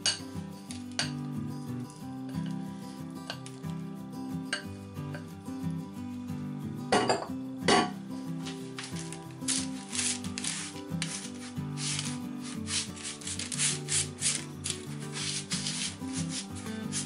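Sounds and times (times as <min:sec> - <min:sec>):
background music: 0:00.0 - 0:17.0
spatula scraping granola on paper: 0:08.4 - 0:17.0.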